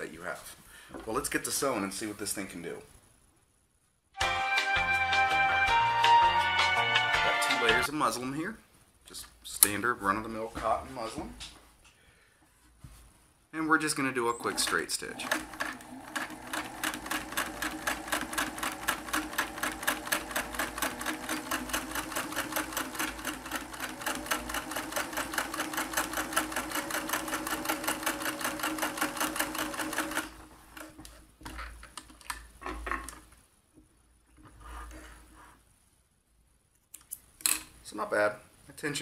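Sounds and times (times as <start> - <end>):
sewing machine stitching: 14.4 - 31.0.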